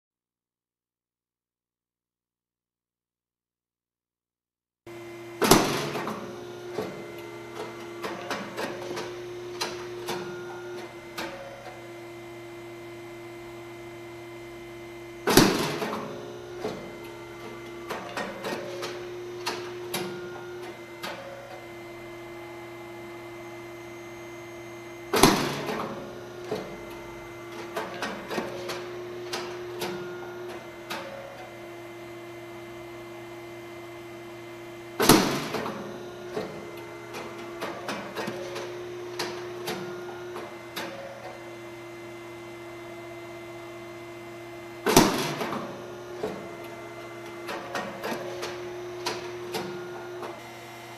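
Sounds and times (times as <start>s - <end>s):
machine humming: 4.9s - 50.9s.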